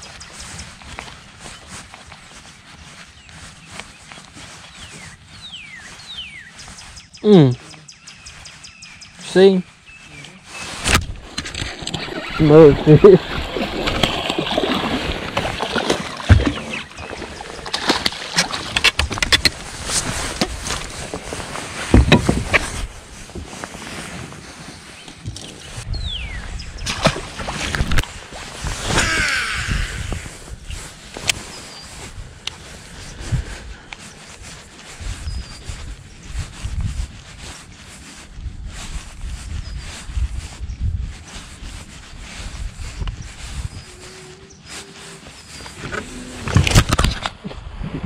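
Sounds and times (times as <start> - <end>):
wind rumbling on microphone: 0.0 - 48.0
fish splashing at surface: 11.7 - 18.7.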